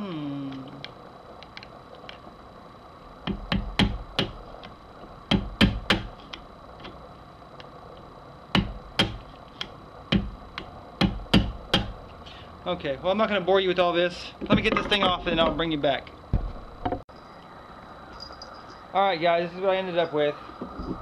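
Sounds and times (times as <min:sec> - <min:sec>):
hammer tapping on metal: 0:11.0 - 0:11.9.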